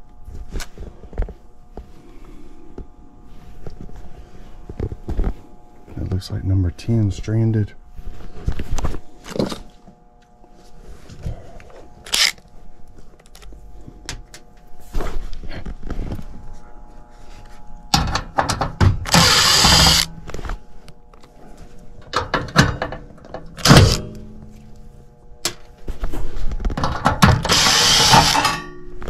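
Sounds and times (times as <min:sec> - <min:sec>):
faint steady hum: 0:00.0 - 0:29.0
cordless impact driver running: 0:12.1 - 0:12.4, 0:17.9 - 0:20.1, 0:23.6 - 0:24.0, 0:27.0 - 0:28.6.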